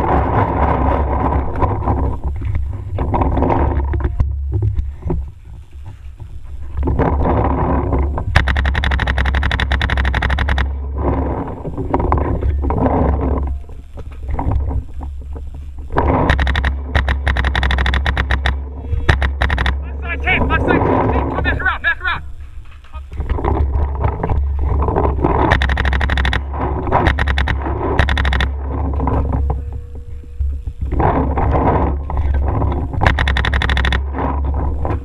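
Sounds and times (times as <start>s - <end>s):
low wind rumble: 0.0s - 35.0s
paintball marker firing shots: 8.3s - 10.8s, 16.0s - 19.8s, 25.4s - 28.8s, 33.0s - 34.2s.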